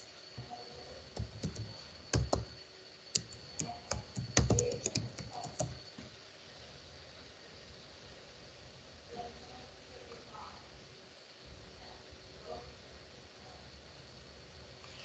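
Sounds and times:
typing on computer keyboard: 0:01.1 - 0:02.6, 0:03.2 - 0:06.0.

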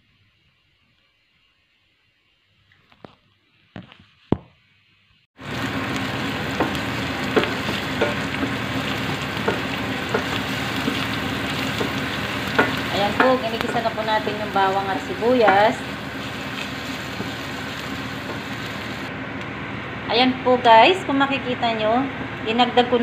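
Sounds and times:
onion and garlic sizzling in oil: 0:05.4 - 0:19.1
wooden spatula stirring in pan: 0:05.4 - 0:19.1.

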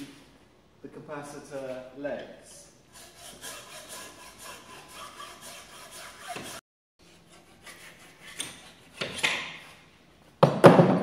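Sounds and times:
hacksaw rasping strokes: 0:02.9 - 0:09.4.

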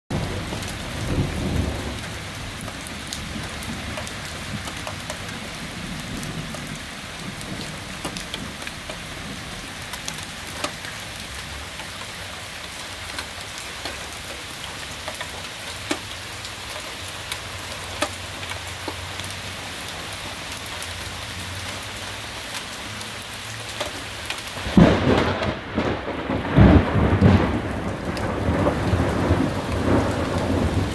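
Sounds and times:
thunder rumbling: 0:00.1 - 0:20.4, 0:23.8 - 0:30.9
steady rain: 0:00.1 - 0:30.9
drops ticking: 0:07.4 - 0:19.4.

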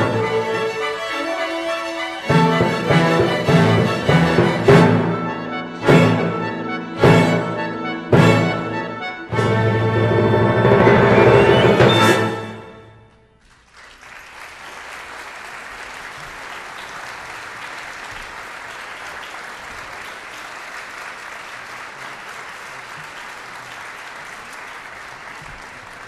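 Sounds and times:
audience applauding: 0:13.4 - 0:26.0.

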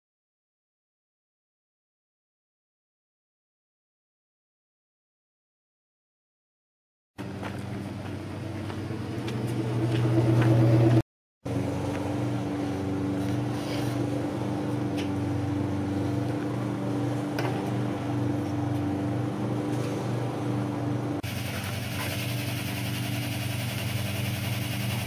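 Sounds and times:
motor humming: 0:07.2 - 0:25.0.

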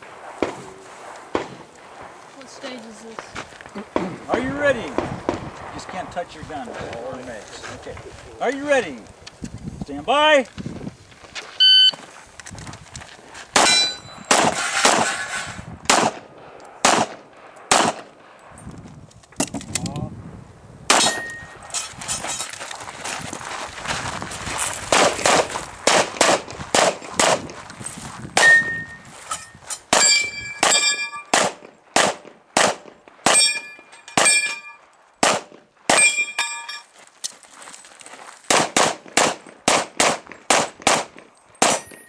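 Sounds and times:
steel targets ringing: 0:13.6 - 0:15.4, 0:28.4 - 0:31.4, 0:33.3 - 0:34.9, 0:35.9 - 0:36.9
rapid pistol fire: 0:15.9 - 0:18.2, 0:24.9 - 0:27.4, 0:30.6 - 0:33.4, 0:35.2 - 0:36.0, 0:38.5 - 0:41.8.

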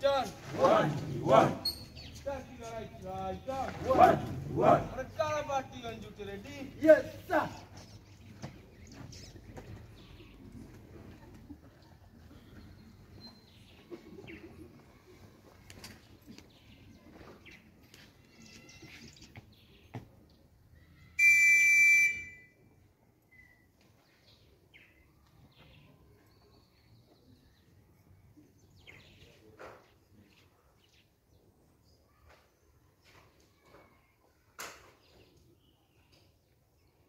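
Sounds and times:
loud high-pitched whistle blast: 0:21.2 - 0:22.5
faint bird chirps: 0:23.2 - 0:24.2.

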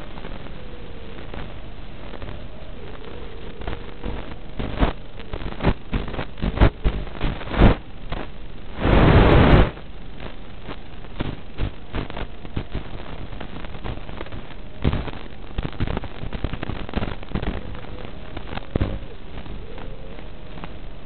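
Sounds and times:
video link hiss and rushing noise: 0:00.0 - 0:21.0
short loud gusts: 0:08.7 - 0:09.8.

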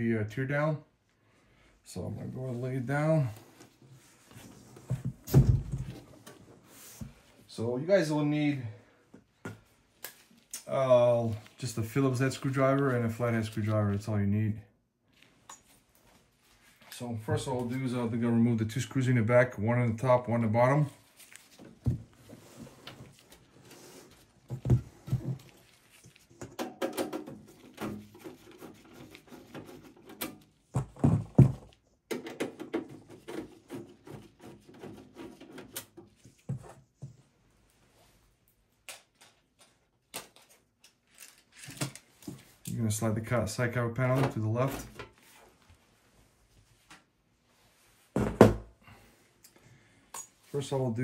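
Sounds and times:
knocks and thumps: 0:04.8 - 0:06.1, 0:30.7 - 0:34.9, 0:48.2 - 0:48.7.

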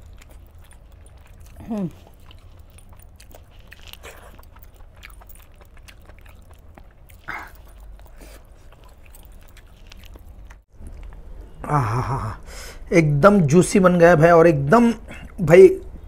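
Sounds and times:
wet chewing and biting: 0:00.0 - 0:11.6.

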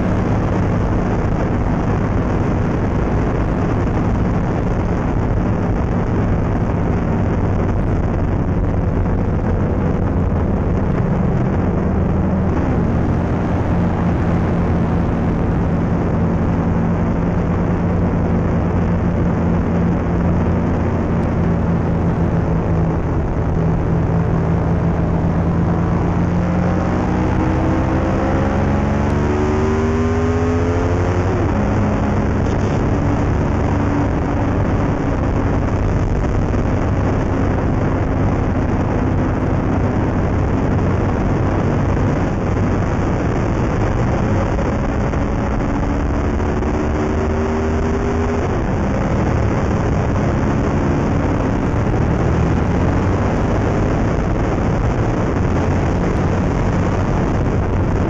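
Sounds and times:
motorcycle engine revving: 0:00.0 - 0:58.0
wind rush on microphone: 0:00.0 - 0:58.0.

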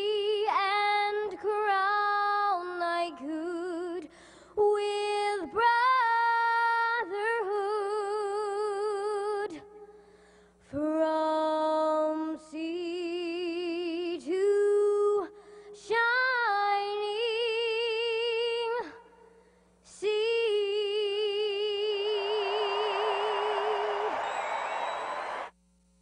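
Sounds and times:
girl singing a cappella: 0:00.0 - 0:19.3, 0:19.9 - 0:23.9
girl breathing: 0:04.1 - 0:04.6, 0:09.8 - 0:10.6, 0:15.4 - 0:15.7, 0:19.3 - 0:19.8.

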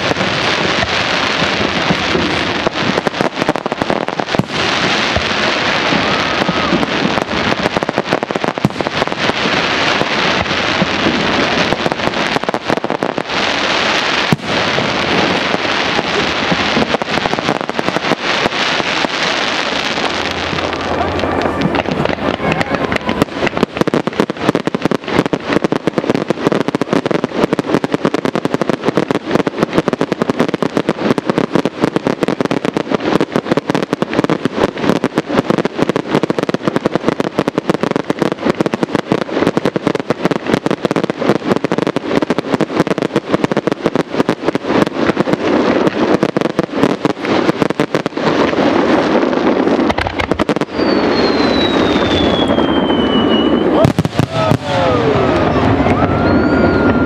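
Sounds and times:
fireworks crackling: 0:00.0 - 0:57.0
fireworks shells bursting: 0:49.7 - 0:57.0.

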